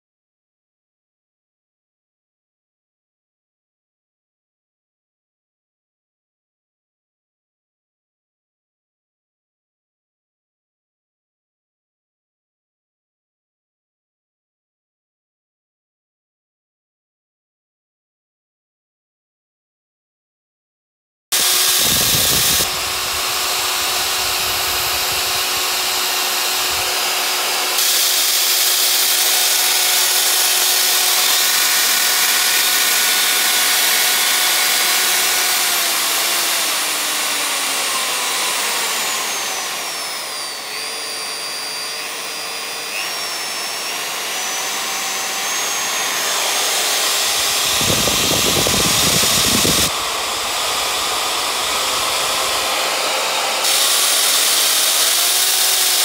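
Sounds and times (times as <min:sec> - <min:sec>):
router motor whining: 0:21.4 - 0:56.0.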